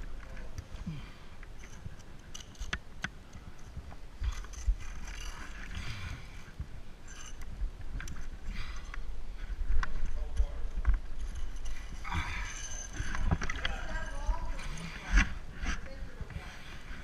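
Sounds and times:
carabiner clinking against rock: 1.4s - 5.8s, 7.0s - 9.1s, 9.8s - 15.9s.

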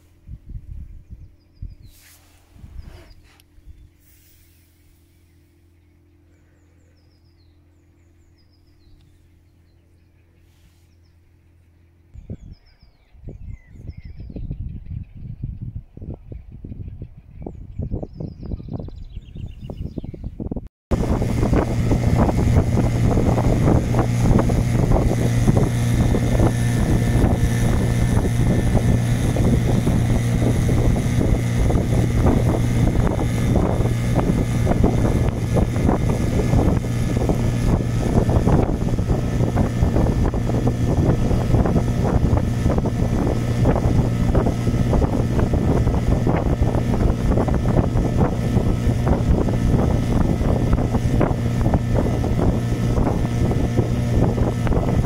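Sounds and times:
motorboat engine droning: 0.0s - 13.0s, 20.9s - 55.0s
rough rushing noise: 20.9s - 55.0s.

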